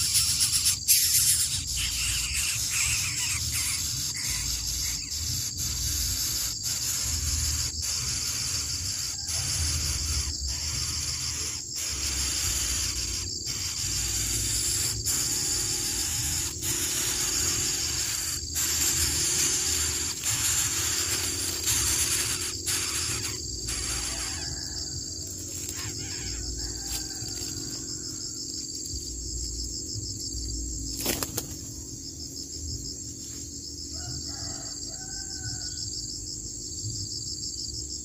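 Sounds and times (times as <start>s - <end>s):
insects trilling: 0.0s - 38.0s.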